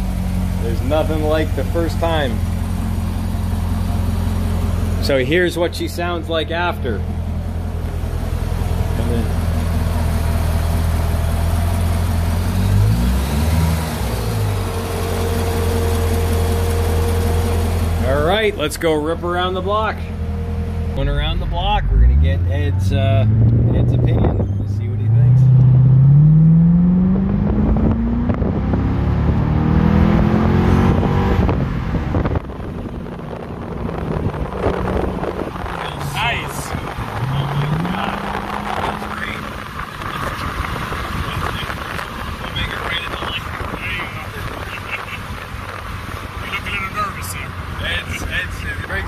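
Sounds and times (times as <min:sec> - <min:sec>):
car engine idling: 0:00.0 - 0:29.4, 0:31.4 - 0:49.0
wind rushing over microphone: 0:27.1 - 0:46.2.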